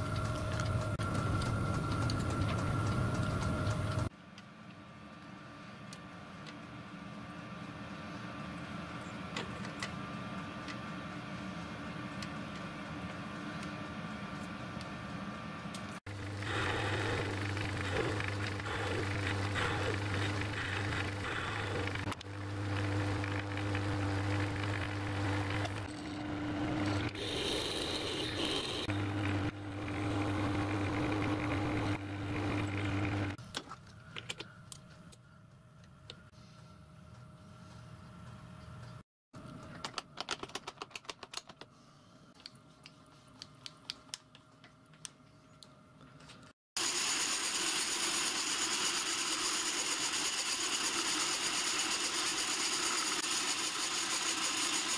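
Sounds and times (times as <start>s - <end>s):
metal lathe running: 16.1s - 33.4s.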